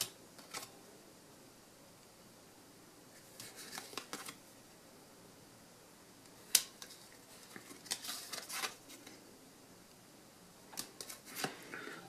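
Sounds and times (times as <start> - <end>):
trading cards rustling and sliding: 3.2 - 4.4, 6.4 - 9.2, 10.8 - 12.0.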